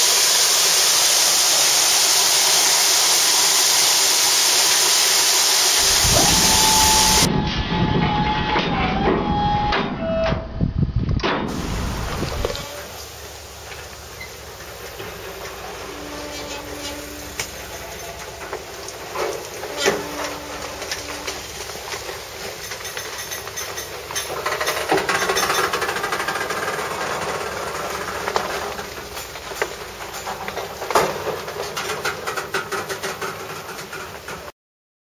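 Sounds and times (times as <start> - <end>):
train rumble: 0.0 - 34.5
steel wheels clicking over rail: 11.5 - 34.5.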